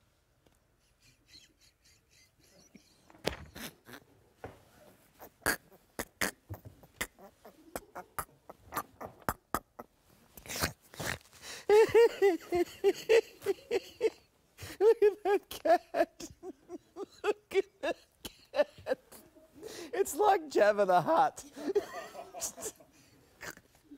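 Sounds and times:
man laughing hard: 1.0 - 3.1, 11.7 - 19.2, 21.5 - 22.9.

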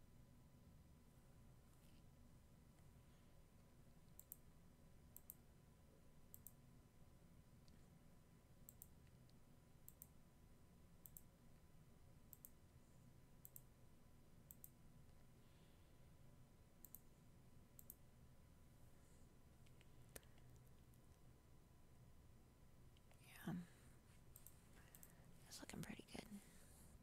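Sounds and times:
low steady hum: 0.0 - 27.0
computer mouse clicks: 4.1 - 4.5, 5.1 - 5.4, 6.3 - 6.6, 8.6 - 10.2, 11.0 - 11.3, 12.3 - 12.6, 13.4 - 13.7, 14.5 - 14.8, 16.8 - 17.1, 17.8 - 18.0, 24.3 - 25.2.

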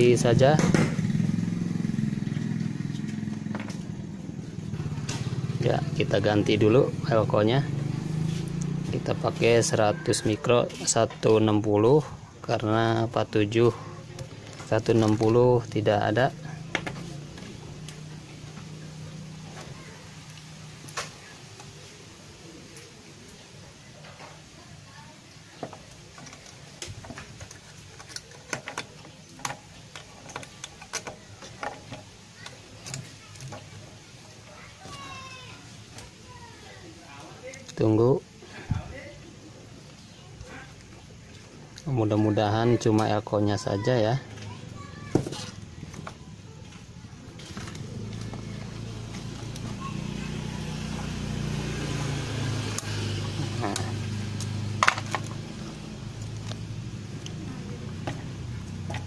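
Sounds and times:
vehicle engine humming: 0.0 - 59.0.

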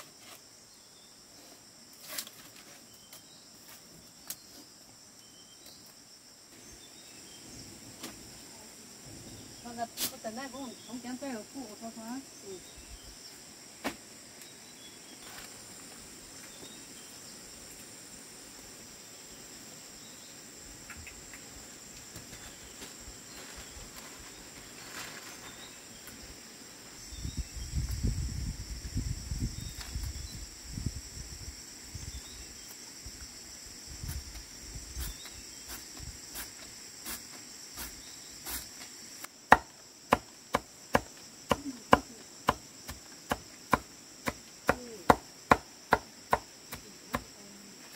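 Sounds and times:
insects trilling: 0.0 - 47.9.

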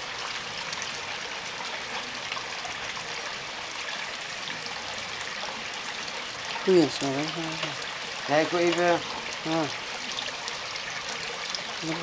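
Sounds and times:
water trickling into pond: 0.0 - 12.0.

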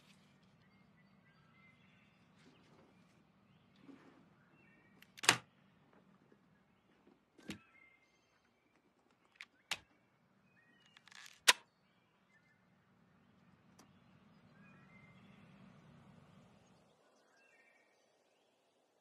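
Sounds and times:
brief rustle: 10.9 - 11.6.

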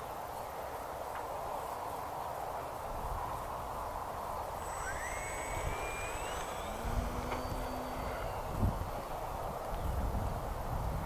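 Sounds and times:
outdoor hiss: 0.0 - 10.3
model plane motor whining: 4.5 - 9.9.

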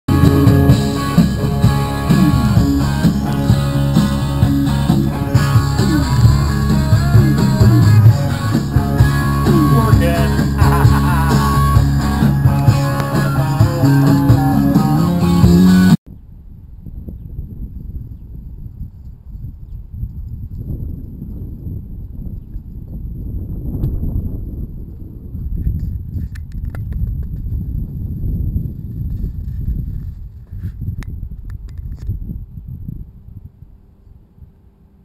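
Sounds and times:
blues-rock music on stereo: 0.1 - 16.0.

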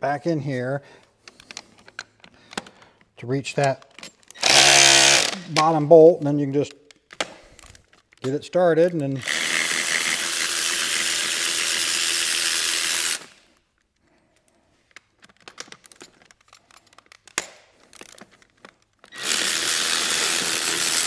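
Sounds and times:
cordless ratchet running: 4.4 - 5.4, 9.2 - 13.4, 19.1 - 21.0.

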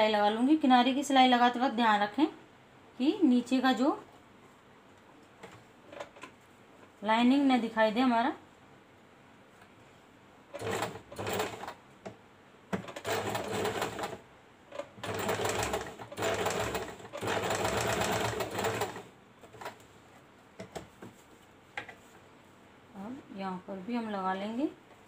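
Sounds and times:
sewing machine stitching: 10.6 - 11.8, 12.8 - 19.8.

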